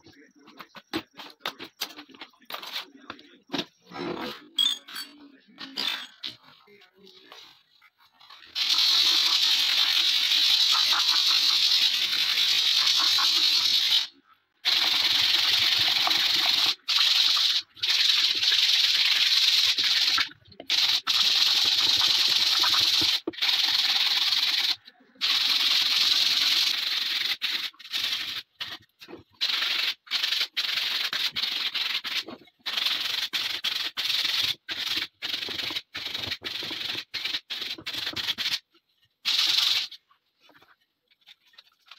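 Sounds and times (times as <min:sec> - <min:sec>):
sandpaper rubbing on wood: 0:08.6 - 0:14.1, 0:14.7 - 0:28.8, 0:29.4 - 0:38.6, 0:39.2 - 0:40.0.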